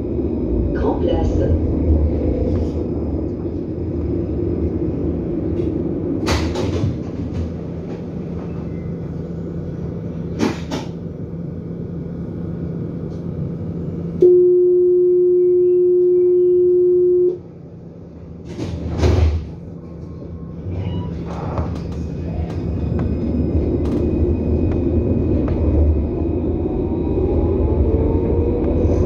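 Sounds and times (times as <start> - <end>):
tram equipment humming: 0.0 - 29.0
tram doors shutting thud: 5.4 - 9.2, 10.2 - 11.1, 18.4 - 19.9, 20.6 - 26.1.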